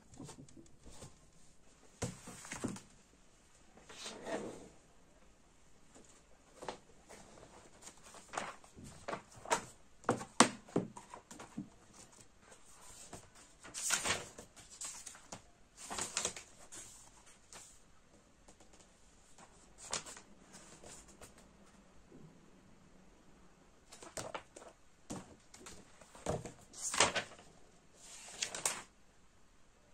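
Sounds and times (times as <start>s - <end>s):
books knocking and tapping on desk: 0.0s - 1.2s, 2.0s - 2.9s, 8.6s - 11.8s, 24.0s - 26.7s.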